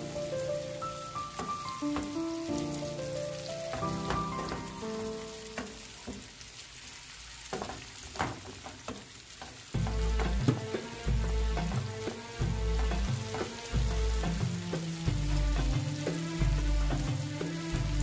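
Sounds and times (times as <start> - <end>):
background music with slow melody: 0.0 - 6.0, 9.8 - 18.0
vegetables sizzling in oil: 0.0 - 18.0.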